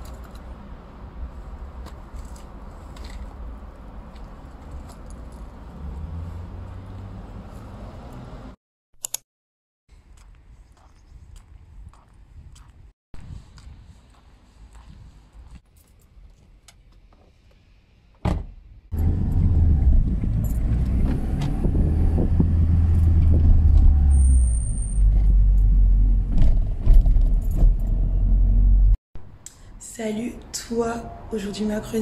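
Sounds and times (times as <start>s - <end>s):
car engine and road rumble: 0.0s - 8.6s, 18.4s - 29.4s.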